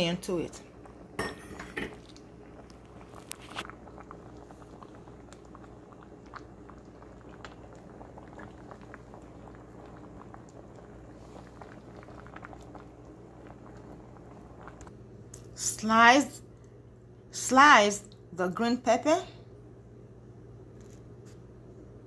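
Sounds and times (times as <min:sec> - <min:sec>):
pot simmering with bubbling pops: 0:00.0 - 0:17.1
low hum: 0:00.0 - 0:22.0.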